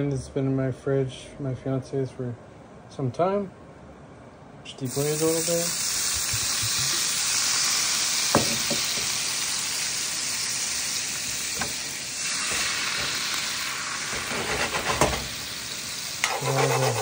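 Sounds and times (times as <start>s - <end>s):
wine sizzling in a frying pan: 4.9s - 16.3s.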